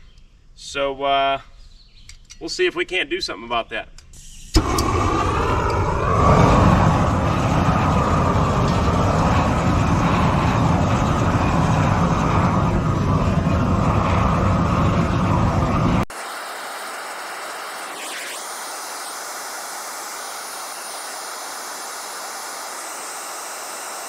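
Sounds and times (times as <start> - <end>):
propane torch lighting pop: 4.2 - 9.6
torch flame rushing: 4.2 - 24.0.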